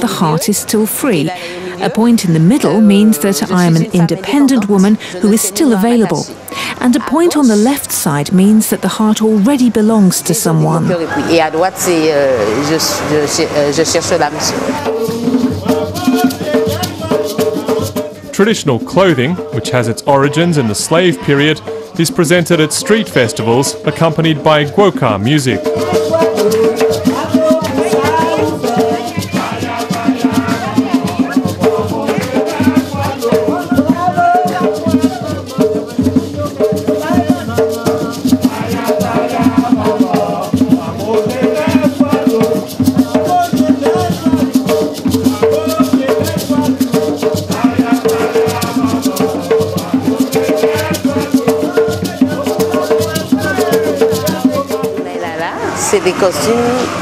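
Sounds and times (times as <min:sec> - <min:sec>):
hand drums: 0:00.0 - 0:57.0
voices singing: 0:00.0 - 0:57.0
shaker rattle: 0:14.8 - 0:18.3, 0:25.6 - 0:55.1.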